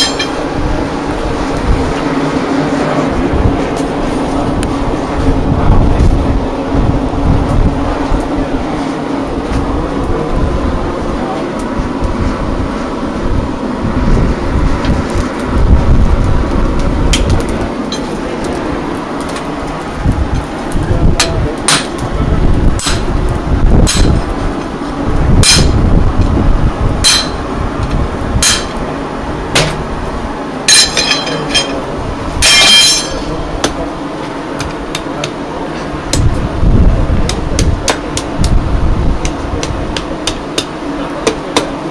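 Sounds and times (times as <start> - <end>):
hammer striking iron on anvil: 0.0 - 0.4, 21.2 - 22.0, 22.8 - 23.1, 23.8 - 24.2, 25.4 - 25.8, 27.0 - 27.4, 28.4 - 28.8, 29.6 - 29.8, 30.7 - 31.8, 32.4 - 33.8, 39.2 - 41.8.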